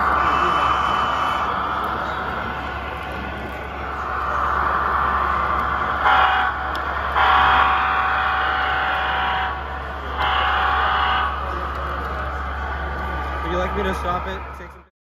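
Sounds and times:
train horn blasts: 0.0 - 1.7, 6.0 - 11.8.

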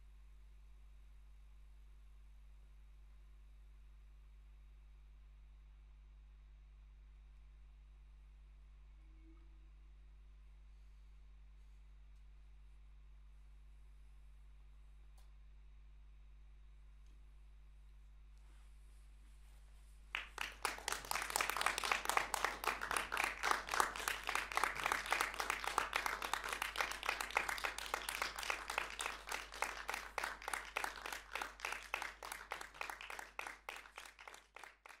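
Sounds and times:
audience applause: 20.2 - 35.0.

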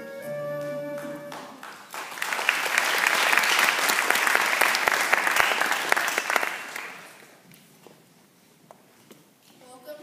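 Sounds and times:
audience clapping: 0.6 - 7.4.

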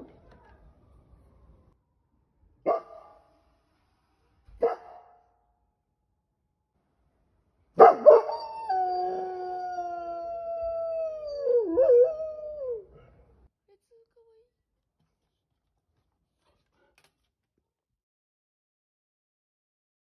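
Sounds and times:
dog howling: 7.8 - 12.9.

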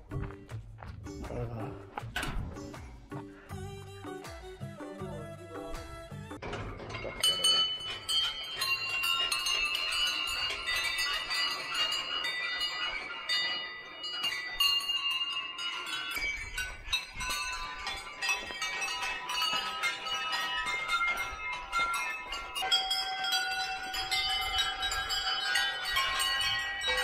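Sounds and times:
temple bells ringing and clanging: 6.3 - 27.0.

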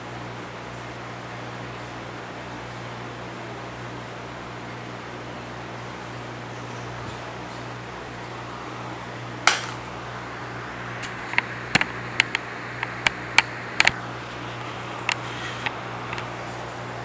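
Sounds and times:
low electrical hum: 0.0 - 17.0
sharp knock: 9.5 - 9.8.

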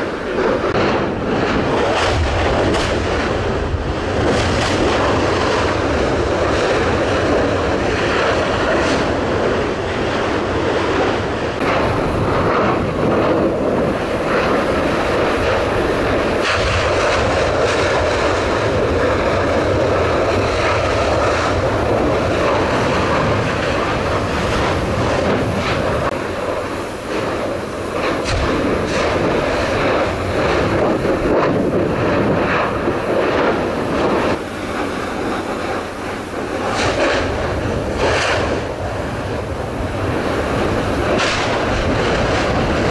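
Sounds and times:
volcanic fissure rushing: 0.0 - 42.9.

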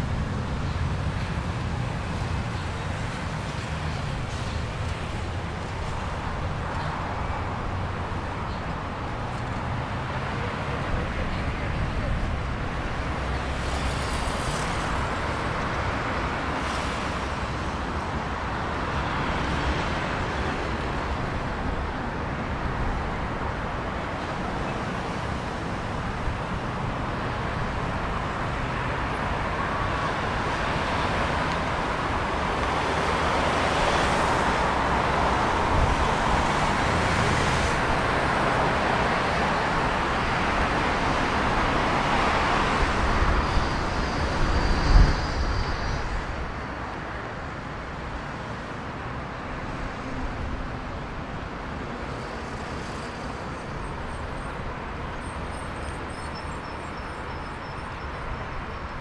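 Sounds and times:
cars passing by: 0.0 - 59.0.

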